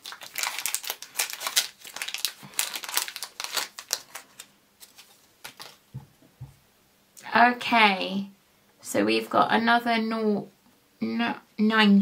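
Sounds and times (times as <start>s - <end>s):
plastic bag crinkling being torn: 0.0s - 5.8s
soft rustles: 3.8s - 6.6s.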